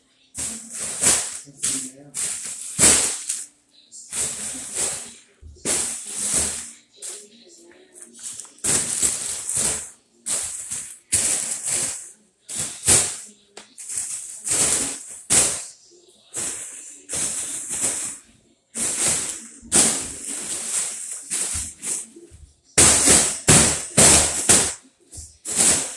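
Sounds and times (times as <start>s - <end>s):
foil balloon crinkling: 4.1s - 15.6s, 18.8s - 22.2s.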